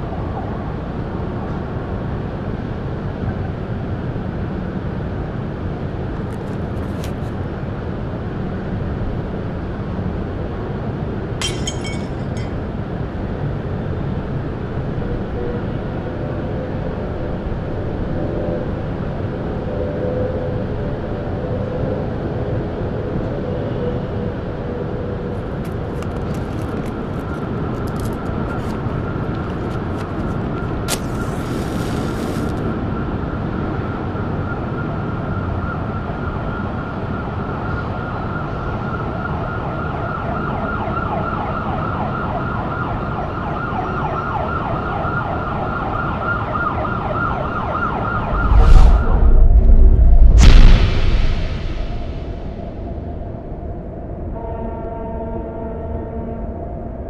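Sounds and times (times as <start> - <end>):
loud deep boom: 48.2 - 53.0
dense steady rumble: 48.2 - 53.8.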